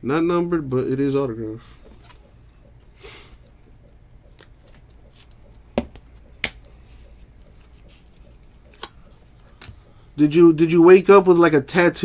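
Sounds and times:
trading cards rustling: 4.3s - 6.6s, 7.5s - 9.8s.

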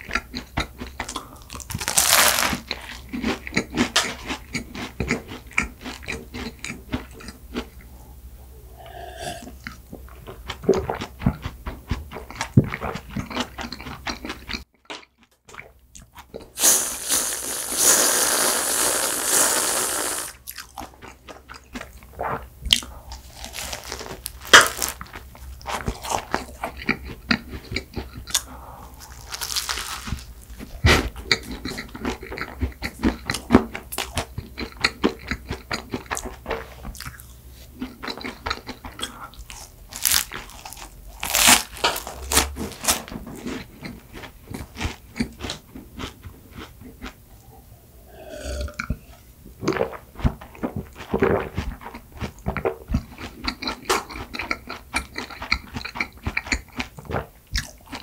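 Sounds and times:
pastry crunching: 1.0s - 4.4s, 22.8s - 32.5s, 37.0s - 47.2s
wet chewing with mouth clicks: 2.6s - 7.9s, 9.4s - 16.6s, 20.4s - 47.5s, 48.6s - 58.0s.

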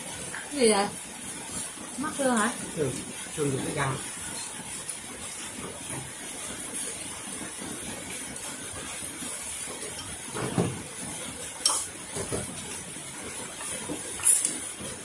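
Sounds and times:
utensils clinking against bowls: 11.6s - 12.4s, 14.1s - 14.6s.

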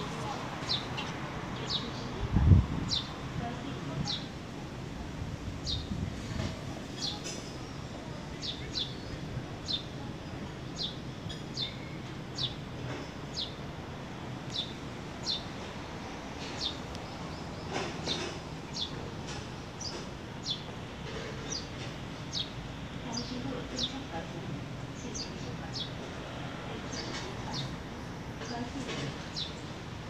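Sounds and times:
small bird chirping: 10.7s - 12.6s, 14.5s - 15.6s, 16.4s - 19.1s, 19.8s - 20.7s.

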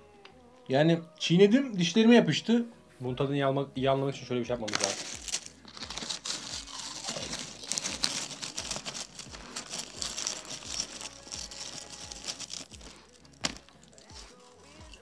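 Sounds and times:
crisp packet crinkling: 4.6s - 15.0s
crisps crunching: 4.6s - 15.0s.

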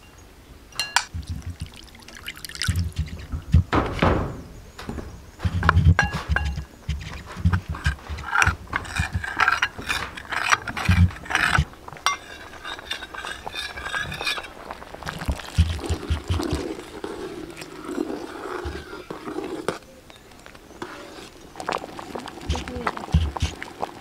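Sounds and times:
metal ladle scraping ceramic bowl: 0.9s - 3.6s, 5.4s - 19.8s.

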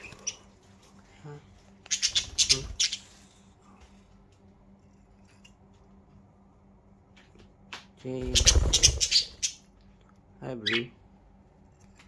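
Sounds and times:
budgerigars squawking: 1.9s - 3.1s, 8.3s - 9.6s
faint bird chirps: 1.9s - 3.3s.

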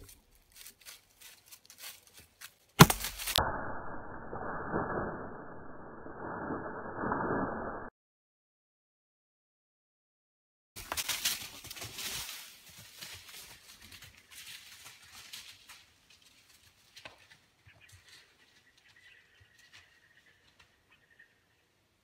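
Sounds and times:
deer running through dry leaves: 0.1s - 3.4s, 10.8s - 20.7s
twigs snapping: 2.8s - 3.4s.

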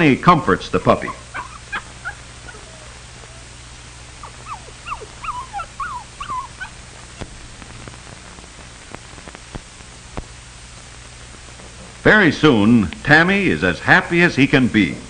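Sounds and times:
puppy whimpering: 0.9s - 7.4s.

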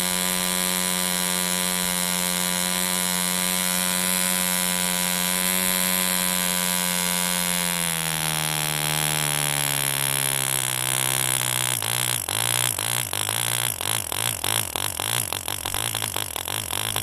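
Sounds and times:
model diesel engine buzzing: 0.0s - 17.0s.

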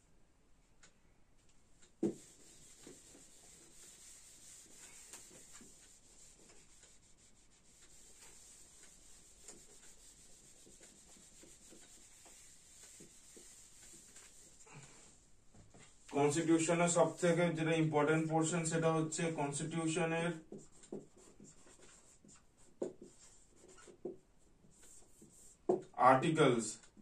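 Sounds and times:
eraser rubbing on whiteboard: 2.0s - 15.2s, 15.8s - 17.6s, 20.4s - 25.9s.

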